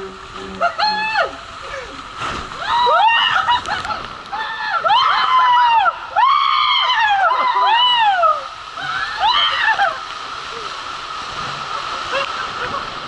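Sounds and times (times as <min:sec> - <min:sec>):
people screaming and whooping: 0:02.6 - 0:10.3.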